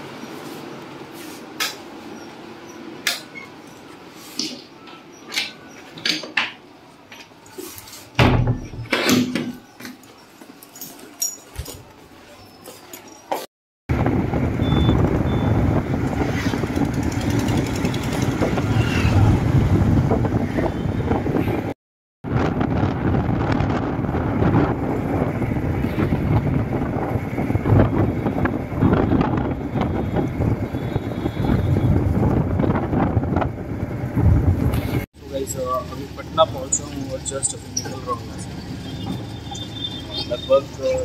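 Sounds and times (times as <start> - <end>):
motorcycle engine rumble: 13.9 - 20.3.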